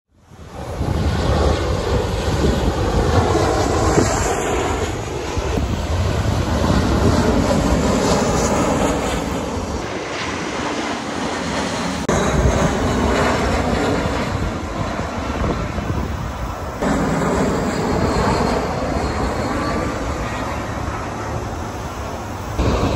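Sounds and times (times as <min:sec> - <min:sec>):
jet airliners rumbling overhead: 0:00.1 - 0:22.9.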